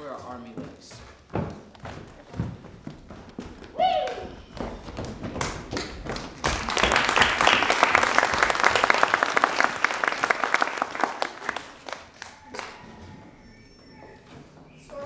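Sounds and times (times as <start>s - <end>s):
audience applauding: 5.0s - 12.9s.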